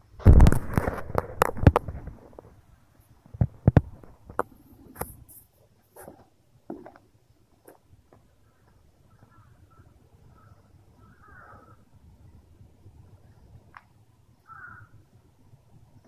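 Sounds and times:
sharp clicks and knocks: 0.2 - 2.1.

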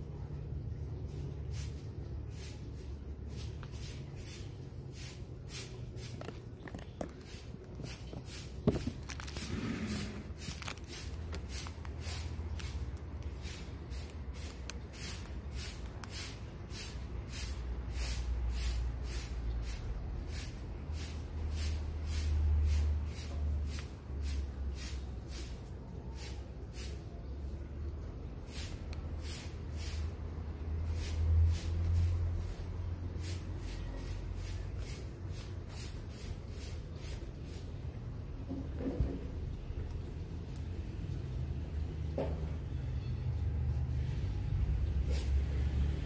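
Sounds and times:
needle and thread through leather: 6.0 - 12.8.

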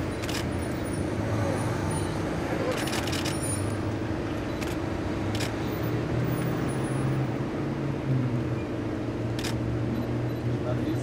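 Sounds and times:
street traffic rumble: 0.0 - 11.0
camera shutter clicks: 9.4 - 9.6.

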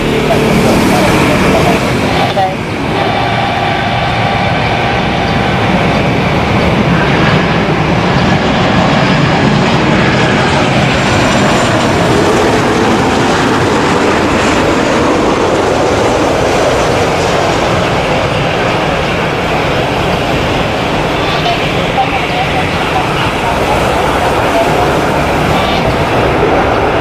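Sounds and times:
jet airliner flying low past: 0.0 - 27.0.

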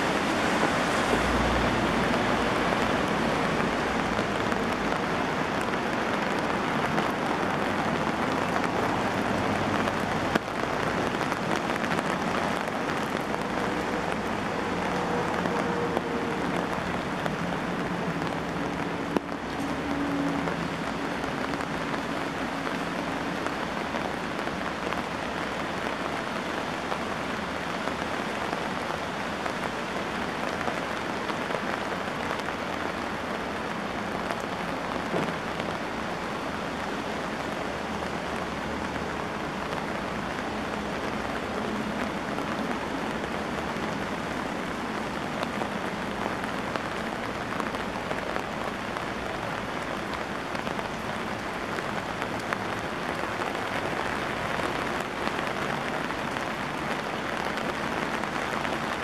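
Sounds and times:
heavy rain on pavement: 0.0 - 59.0.

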